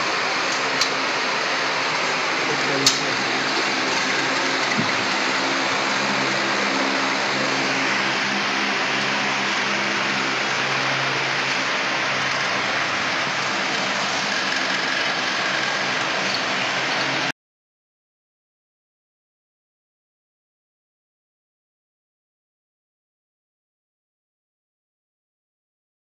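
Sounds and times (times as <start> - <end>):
electric motor humming: 0.0 - 17.3.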